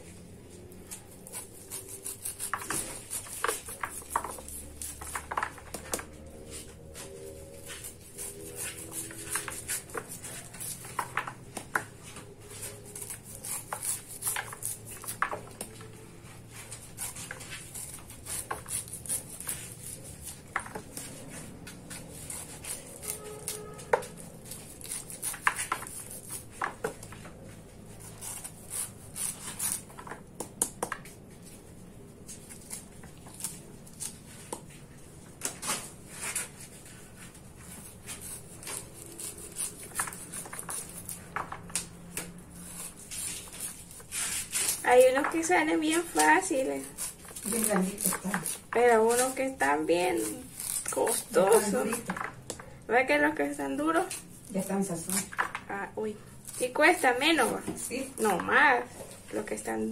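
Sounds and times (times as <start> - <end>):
knife cutting corn kernels: 0.9 - 6.1, 7.6 - 15.9, 16.5 - 27.1, 37.7 - 52.3.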